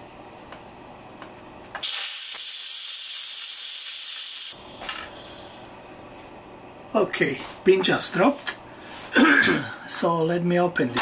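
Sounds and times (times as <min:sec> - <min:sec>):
loud hiss of steam: 0:01.8 - 0:04.6.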